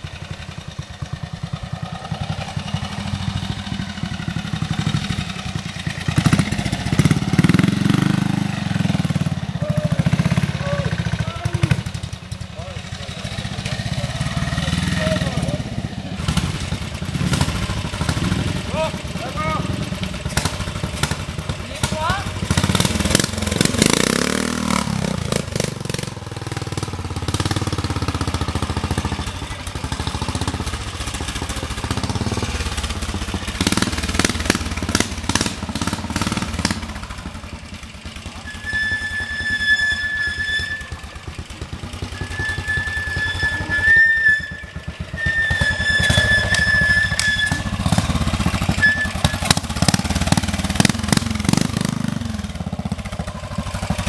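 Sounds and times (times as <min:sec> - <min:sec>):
motorcycle engines revving: 0:00.0 - 0:54.0
high whistle-like tone: 0:38.4 - 0:41.2, 0:42.1 - 0:47.9, 0:48.7 - 0:49.5.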